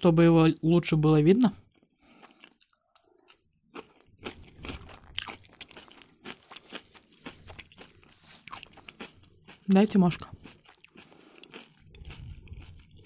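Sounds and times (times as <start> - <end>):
person chewing crunchy food: 1.6 - 13.0.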